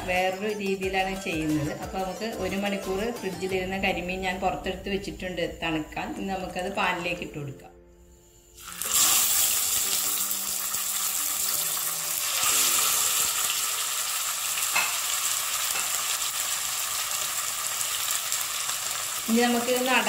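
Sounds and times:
fish sizzling in hot oil: 8.5 - 20.0.

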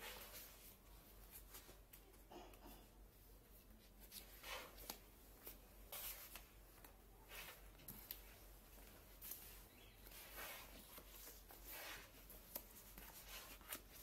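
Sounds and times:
stiff pages being turned: 9.2 - 14.0.

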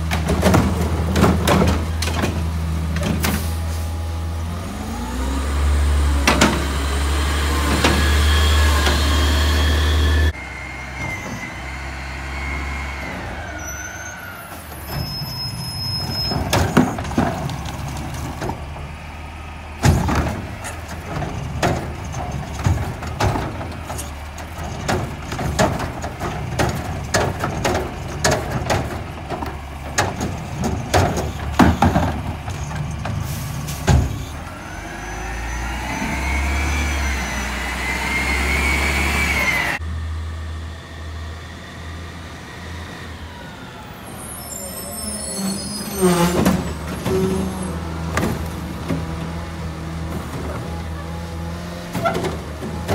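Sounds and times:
engine revving with whine: 4.5 - 14.3, 34.2 - 48.1
cart banging against can: 16.1 - 18.6, 19.8 - 33.2.

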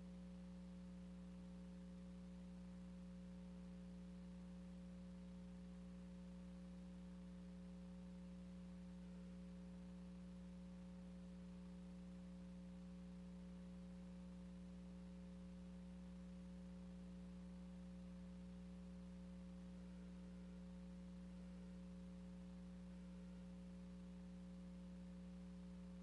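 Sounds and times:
low hum with faint hiss: 0.0 - 26.0.

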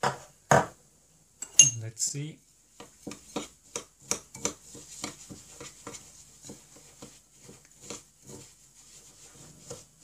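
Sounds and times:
spoon scraping and tapping glass bowl: 1.4 - 1.9, 2.8 - 8.5.

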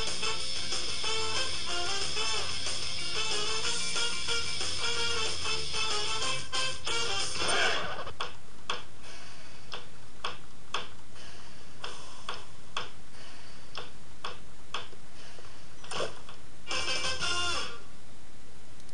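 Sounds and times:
music: 0.0 - 7.8, 16.7 - 17.9.

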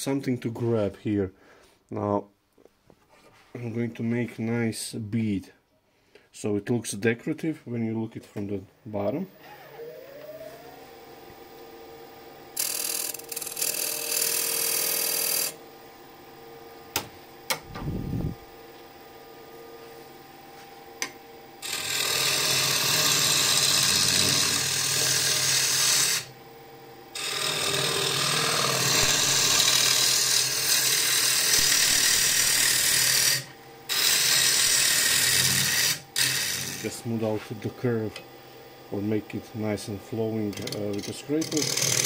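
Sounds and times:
lathe motor humming: 9.3 - 42.0
lathe tool cutting wood: 9.4 - 15.6, 21.6 - 26.4, 27.1 - 38.1, 38.9 - 42.0.

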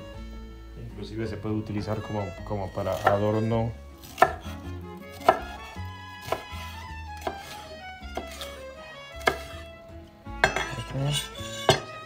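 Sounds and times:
background music: 0.0 - 12.0
knife knocking on cutting board: 10.4 - 10.8, 11.7 - 12.0.

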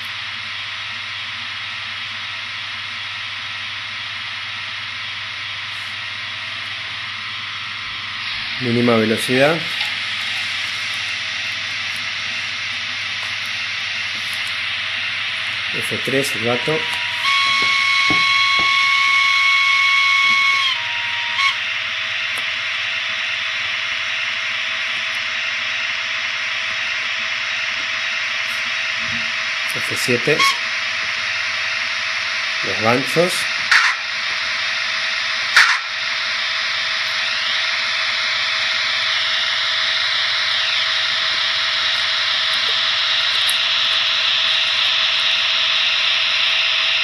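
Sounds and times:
locomotive hissing: 4.1 - 47.0
model locomotive whistle: 15.8 - 24.6, 29.8 - 30.8, 32.5 - 34.1, 35.3 - 47.0.

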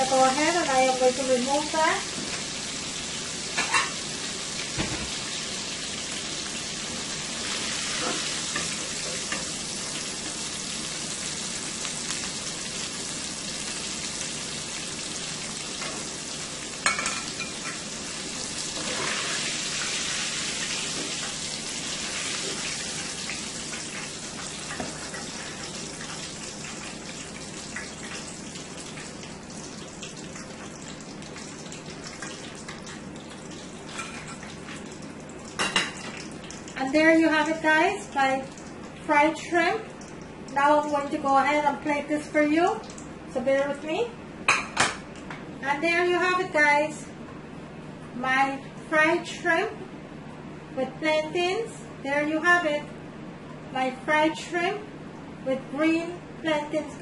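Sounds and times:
shrimp sizzling in hot oil: 0.0 - 34.9.

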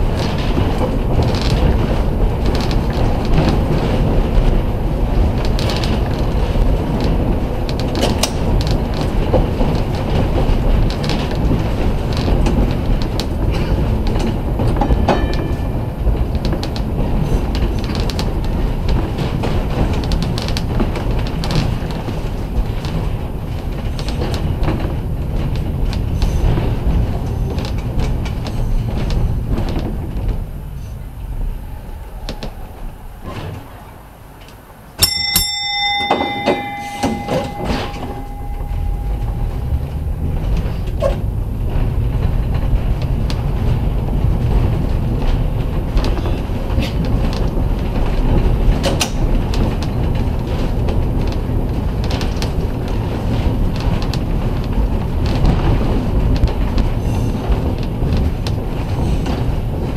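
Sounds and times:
streetcar wheels rumbling: 0.0 - 59.9
streetcar bell ringing: 14.3 - 17.4, 31.6 - 42.2.

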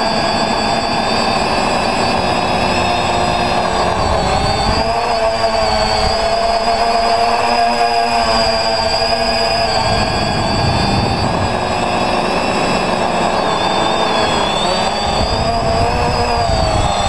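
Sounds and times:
quadcopter motors whining: 0.0 - 17.0
low rumble: 9.0 - 13.5.

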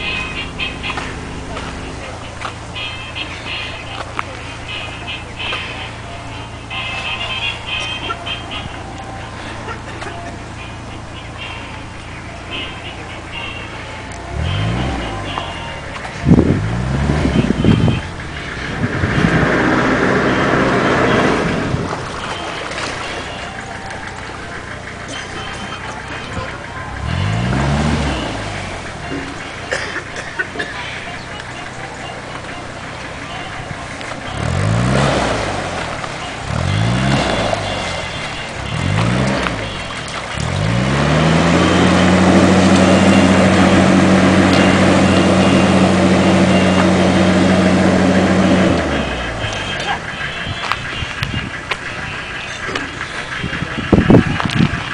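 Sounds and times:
boat engine running: 0.0 - 54.9.

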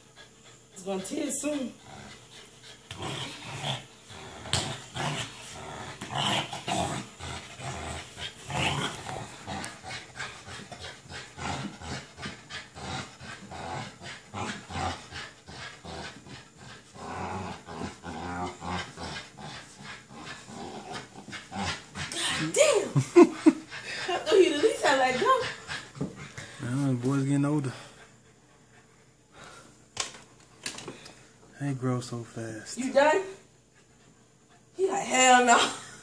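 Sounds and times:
puppy growling: 0.2 - 28.0.

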